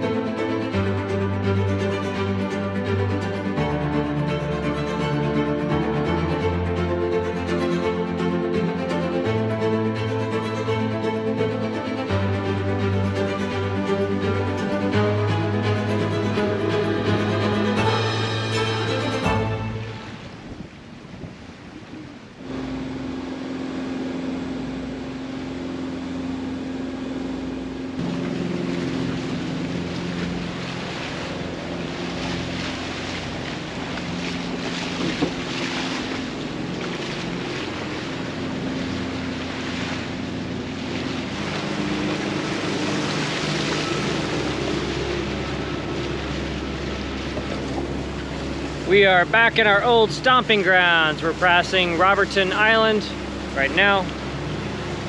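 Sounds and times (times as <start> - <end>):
boat engine hum: 0.0 - 55.0
water rushing past hull: 0.0 - 55.0
wind on microphone: 19.4 - 22.6, 28.0 - 48.9.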